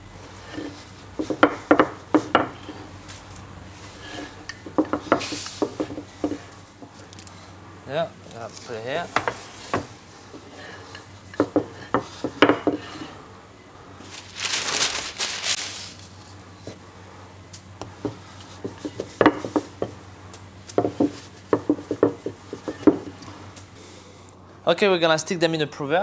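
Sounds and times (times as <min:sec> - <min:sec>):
rolling pin knocking on wooden bench: 0:01.2 - 0:02.7, 0:04.6 - 0:06.5, 0:09.2 - 0:09.9, 0:11.4 - 0:12.9, 0:17.9 - 0:20.0, 0:20.8 - 0:23.1.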